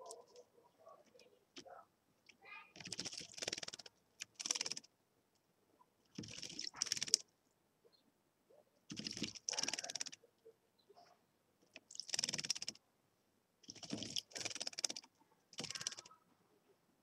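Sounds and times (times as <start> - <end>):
bird wings splashing water: 2.8 - 4.9, 6.2 - 7.2, 8.9 - 10.2, 11.9 - 12.7, 13.6 - 16.1.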